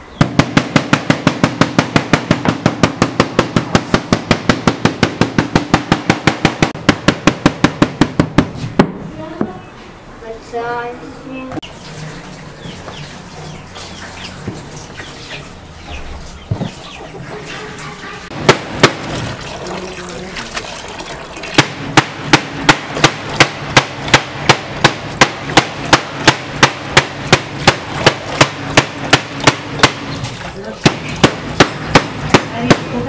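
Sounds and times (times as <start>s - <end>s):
knocking on a hard surface: 0.2s - 9.5s.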